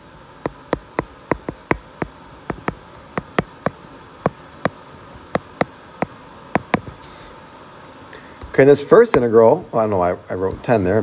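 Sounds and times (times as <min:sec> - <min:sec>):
stylus tapping on glass screen: 0:00.5 - 0:04.8, 0:05.4 - 0:06.9.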